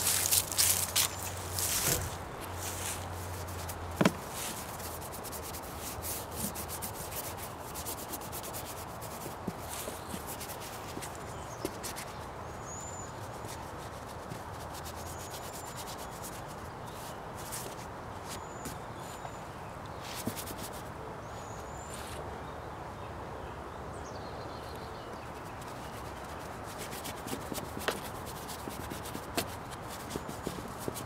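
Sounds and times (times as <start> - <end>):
paintbrush scrubbing canvas: 0.0 - 12.2, 13.5 - 17.8, 25.6 - 31.0.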